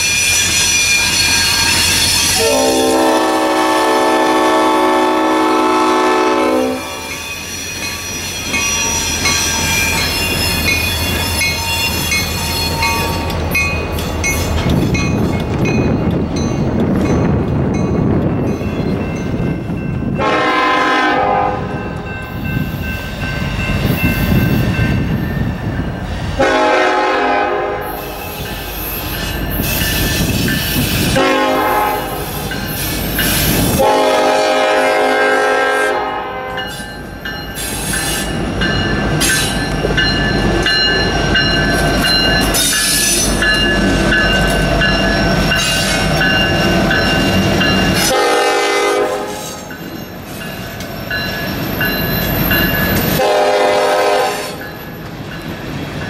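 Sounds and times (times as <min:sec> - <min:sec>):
train rumbling past: 0:00.0 - 0:56.0
train air horn blasts: 0:02.3 - 0:07.2, 0:20.2 - 0:21.8, 0:26.4 - 0:28.4, 0:31.0 - 0:32.5, 0:33.6 - 0:36.7, 0:48.0 - 0:49.7, 0:53.2 - 0:54.6.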